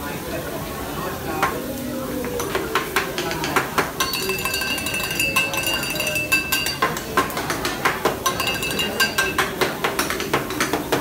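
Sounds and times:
metal utensils clanking on hotplate: 2.4s - 11.0s.

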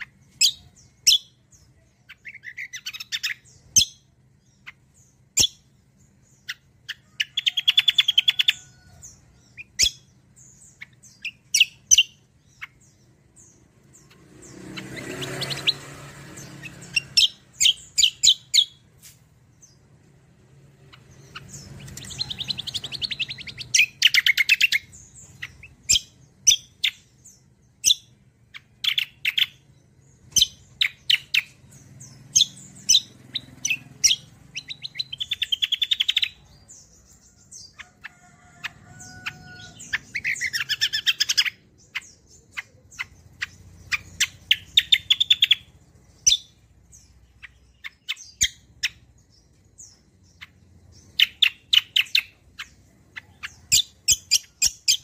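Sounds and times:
songbird sharp chirps: 0.0s - 55.0s
fast rattling bird trills: 10.7s - 18.9s, 27.8s - 49.1s.

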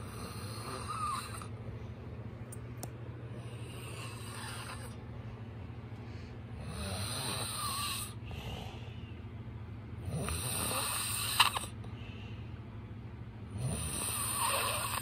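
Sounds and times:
man snoring: 0.0s - 1.5s, 3.5s - 5.0s, 6.6s - 8.7s, 10.0s - 11.7s, 13.5s - 15.0s.

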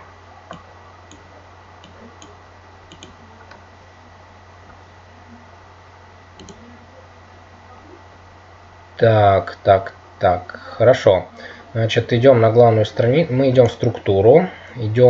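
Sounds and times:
room hum and hiss: 0.0s - 15.0s
computer mouse clicks: 0.5s - 3.6s, 6.4s - 6.6s.

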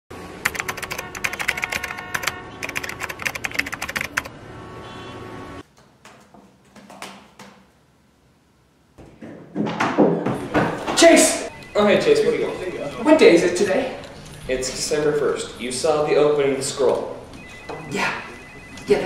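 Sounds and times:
typewriter keystrokes: 0.5s - 4.3s.

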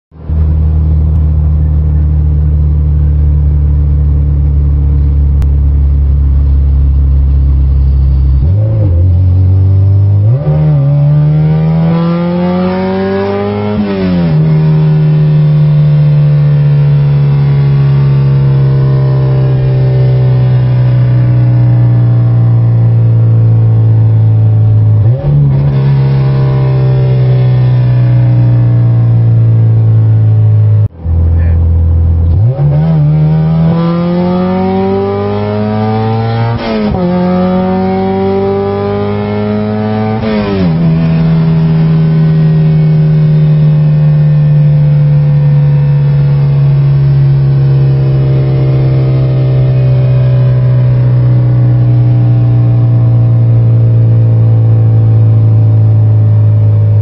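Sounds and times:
car engine revving: 0.1s - 57.0s.

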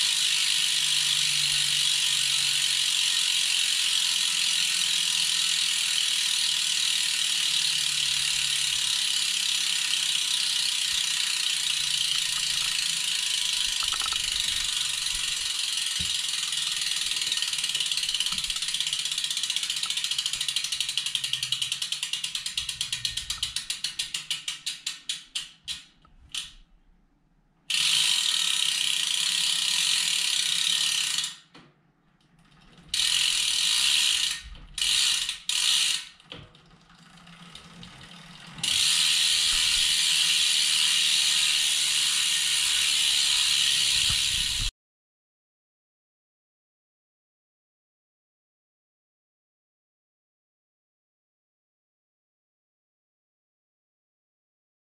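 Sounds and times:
freewheel hub ratcheting: 1.5s - 26.6s.

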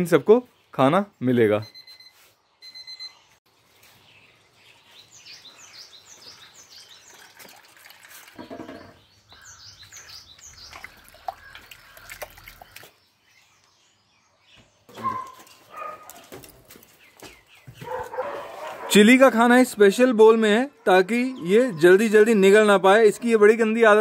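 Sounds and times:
birds chirping: 0.0s - 24.0s
wet food squishing by hand: 9.8s - 13.0s.

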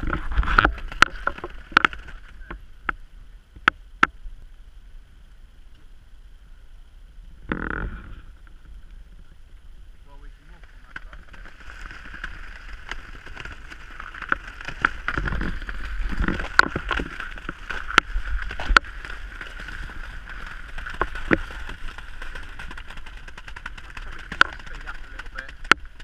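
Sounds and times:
ice cracking and crunching: 0.0s - 2.6s, 10.5s - 26.0s
car tyres rolling on ice: 0.0s - 3.0s, 7.4s - 26.0s
low rumbling: 0.0s - 26.0s
steady rushing noise: 0.0s - 26.0s.

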